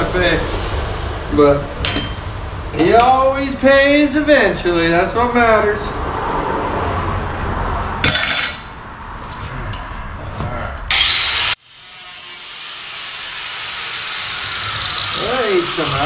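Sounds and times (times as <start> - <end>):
angle grinder cutting sheet metal: 10.9 - 16.0.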